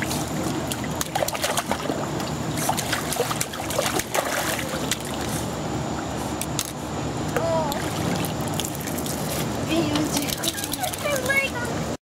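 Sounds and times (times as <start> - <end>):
water splashing around swimming dog: 0.0 - 5.3, 7.8 - 11.4
steady low hum: 0.0 - 12.0.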